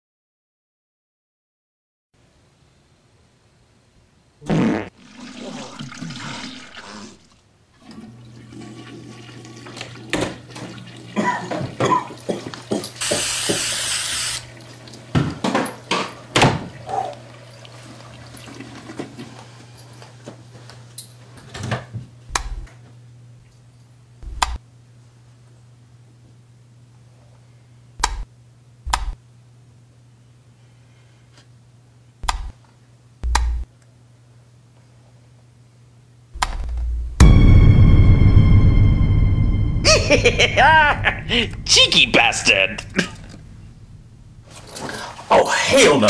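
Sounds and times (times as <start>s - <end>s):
toilet flushing: 4.9s - 19.6s
aerosol spray hiss: 13.0s - 14.5s
steady low hum: 22.2s - 31.0s, 31.6s - 33.8s, 36.2s - 45.3s
low thumps: 24.2s - 24.6s, 33.2s - 33.7s, 36.4s - 44.5s.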